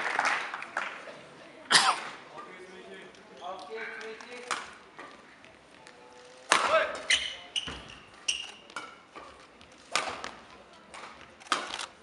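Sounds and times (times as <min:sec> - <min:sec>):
shoes squeaking on court floor: 0:05.0 - 0:10.3
racket hitting shuttlecock: 0:06.4 - 0:08.0, 0:08.7 - 0:11.8.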